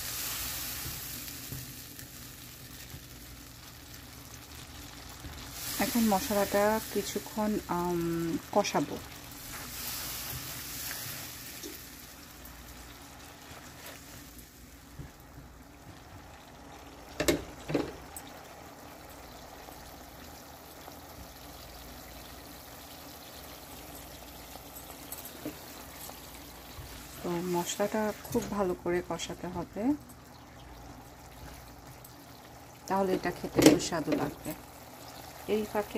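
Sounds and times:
paste sizzling in oil: 0:00.0 - 0:15.5.

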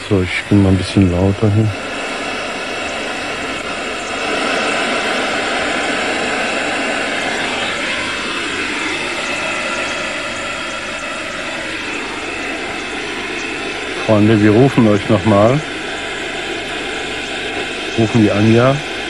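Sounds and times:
hiss from loudspeaker: 0:00.0 - 0:19.0.

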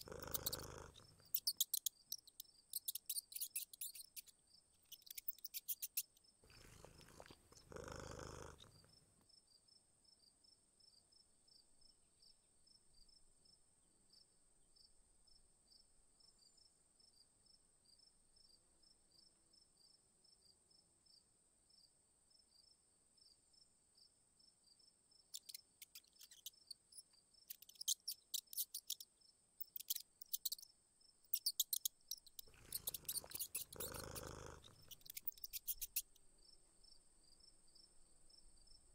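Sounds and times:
crickets trilling: 0:00.0 - 0:04.3, 0:31.3 - 0:36.1
rapid high chirping: 0:00.0 - 0:08.8, 0:25.4 - 0:26.8, 0:27.5 - 0:30.6, 0:31.3 - 0:36.2.

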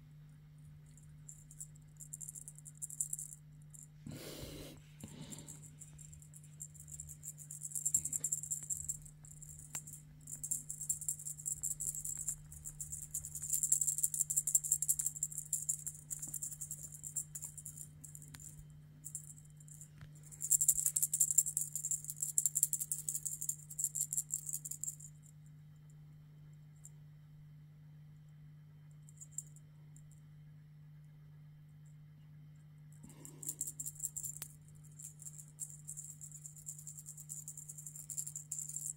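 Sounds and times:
small jingle bells jingling: 0:00.9 - 0:25.2, 0:33.0 - 0:38.9.

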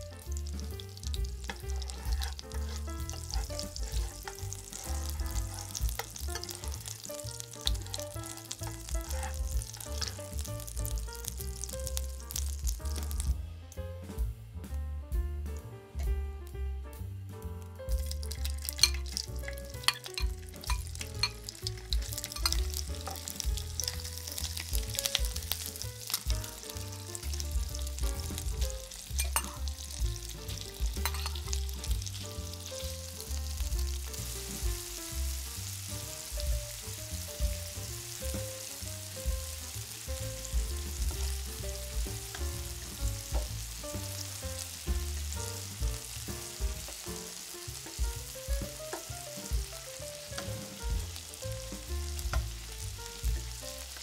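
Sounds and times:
shrimp sizzling in oil: 0:00.0 - 0:13.4, 0:17.4 - 0:54.0
utensils clicking against pan: 0:01.4 - 0:10.4, 0:18.2 - 0:27.3, 0:28.3 - 0:30.0, 0:30.8 - 0:31.6.

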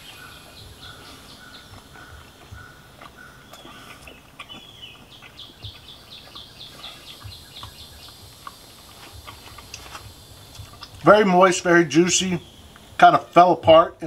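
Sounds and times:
bird trilling and chirping: 0:00.0 - 0:08.5.

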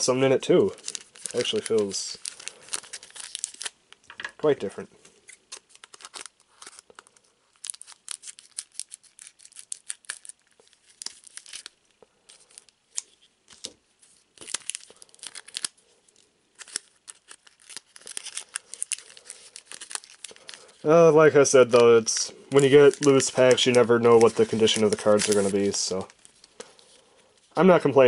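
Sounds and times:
foil wrapper crinkling: 0:00.5 - 0:03.8, 0:05.2 - 0:27.6
scissors snipping foil: 0:16.6 - 0:20.5.

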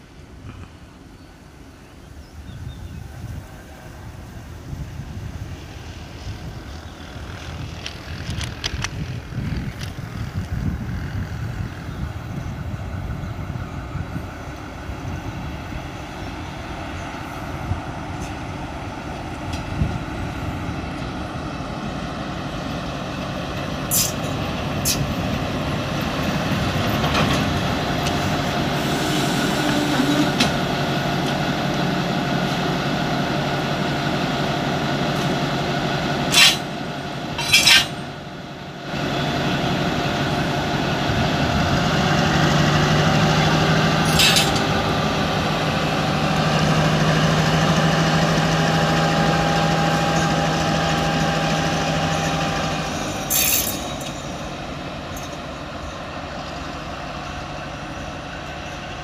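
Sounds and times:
locomotive engine drone: 0:00.0 - 0:59.0
compressed air hisses: 0:28.8 - 0:30.1.

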